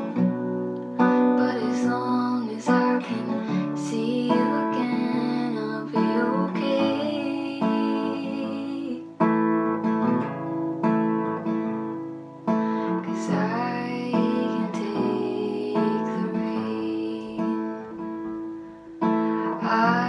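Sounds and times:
strummed acoustic guitar: 0.0s - 20.0s
woman singing: 1.0s - 9.3s, 12.9s - 18.4s, 19.3s - 20.0s.

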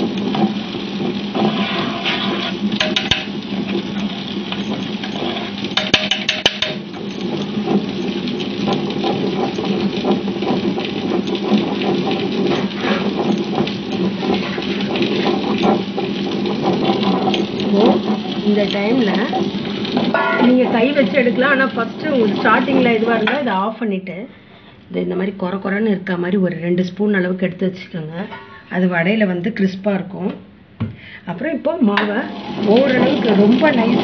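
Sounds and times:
wet grinder motor hum: 0.0s - 23.6s, 32.0s - 34.0s.

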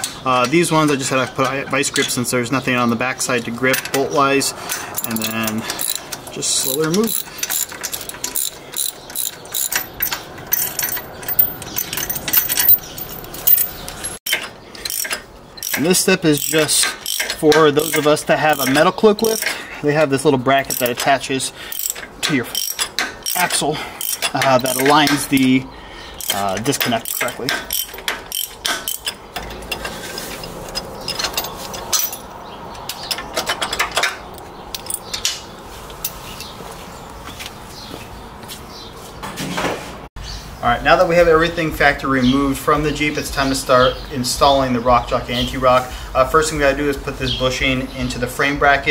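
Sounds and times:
pliers clinking on metal bolt: 4.7s - 19.6s, 20.7s - 21.1s, 21.7s - 25.5s, 26.2s - 32.3s, 32.9s - 36.5s
socket ratchet clicking: 4.9s - 19.6s, 21.7s - 25.4s, 26.2s - 29.2s.

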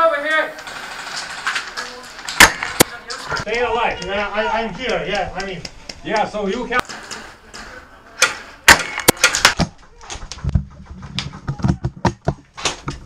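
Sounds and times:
airsoft gunfire cracks: 8.7s - 9.6s.

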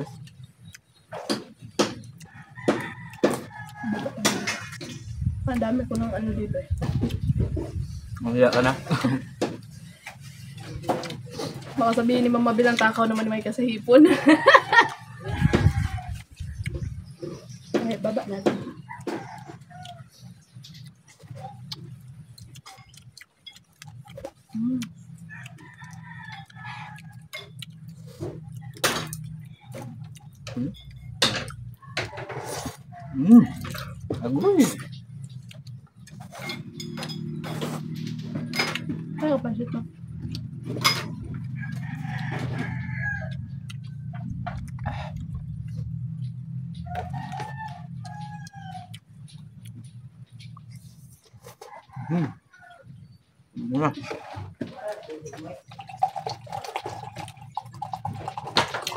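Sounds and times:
rooster crowing: 2.2s - 5.0s, 14.1s - 16.3s, 18.7s - 20.1s, 25.2s - 27.3s, 41.0s - 44.3s, 46.8s - 49.0s, 51.5s - 52.9s
cutlery clicking and clinking: 30.8s - 31.7s, 36.2s - 39.1s.

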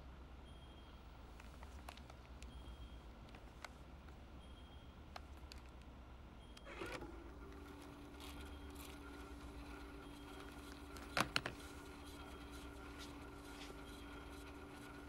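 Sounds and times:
faint steady hum of tape winding: 0.0s - 15.0s
tape transport whirring clunk: 6.5s - 15.0s.

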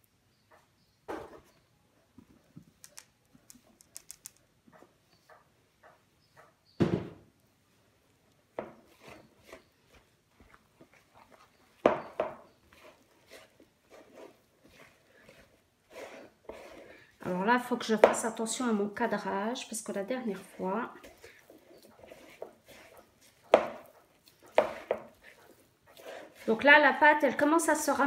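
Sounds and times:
hands mixing dough in a bowl: 7.3s - 28.0s.

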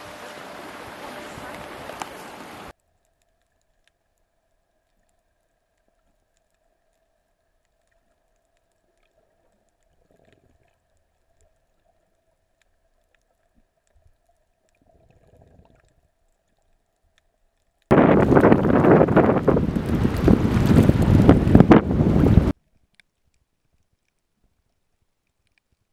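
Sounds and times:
faint steady hum: 0.0s - 18.6s.

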